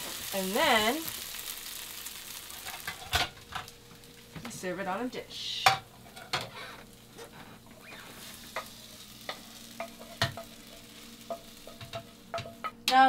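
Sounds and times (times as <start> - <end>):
faint sizzle: 0.0 - 13.0
utensil scraping a frying pan: 6.0 - 12.7.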